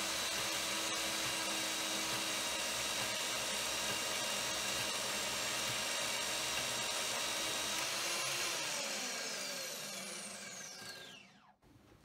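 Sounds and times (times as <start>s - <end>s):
metal-cutting bandsaw whine: 0.0s - 11.5s
bandsaw spinning down: 7.1s - 11.5s.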